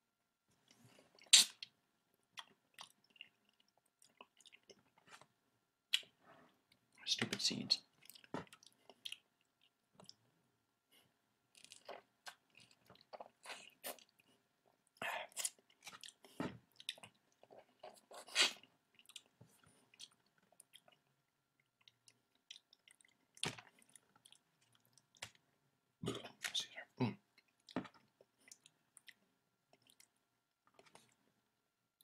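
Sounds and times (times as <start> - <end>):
person chewing wetly: 2.4 - 5.3, 7.9 - 10.2, 11.5 - 25.4, 27.3 - 31.2.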